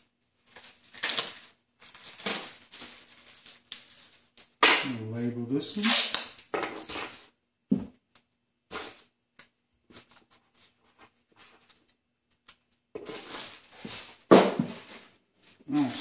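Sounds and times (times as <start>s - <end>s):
rustling: 0.0s - 4.6s, 9.9s - 16.0s.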